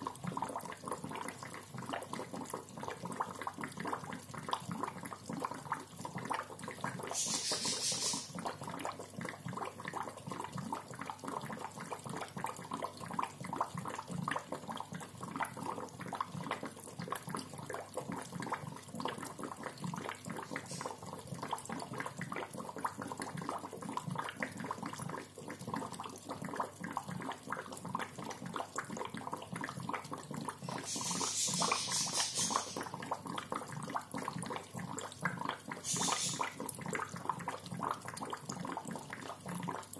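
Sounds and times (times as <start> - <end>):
aquarium bubbler gurgling: 0.0 - 39.9
hissing bursts: 30.7 - 32.8.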